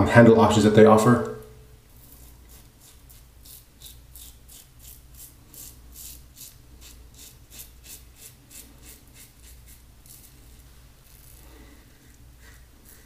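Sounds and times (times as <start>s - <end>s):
razor scraping stubble: 2.0s - 13.0s.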